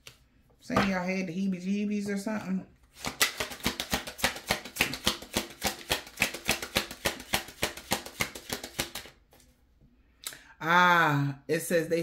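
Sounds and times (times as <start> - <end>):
cards being shuffled: 2.8 - 9.6.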